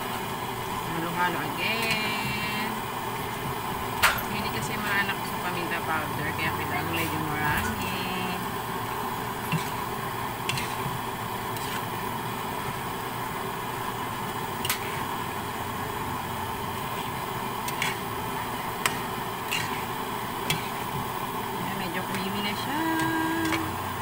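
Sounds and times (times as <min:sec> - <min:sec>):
sauce hissing in a pan: 0:08.2 - 0:21.6
spatula scraping metal pan: 0:10.4 - 0:10.9, 0:11.5 - 0:11.9, 0:18.8 - 0:19.9.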